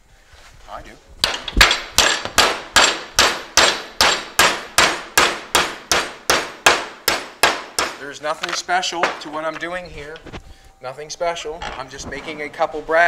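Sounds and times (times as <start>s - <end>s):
hammer striking steel: 1.2s - 9.4s.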